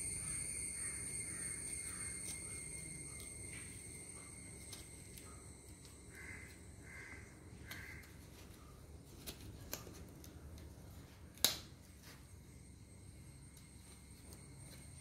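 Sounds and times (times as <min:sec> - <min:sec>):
bird calling: 0:04.1 - 0:08.8.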